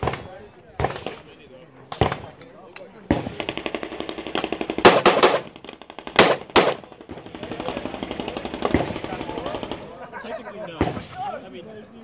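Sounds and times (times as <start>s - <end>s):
gunshots: 0.0s - 2.4s, 3.0s - 9.9s.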